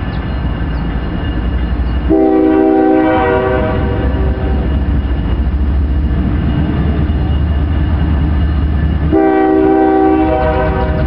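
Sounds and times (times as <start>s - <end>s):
diesel locomotive rumbling: 0.0s - 11.0s
train air horn blast: 2.1s - 4.8s, 9.1s - 11.0s.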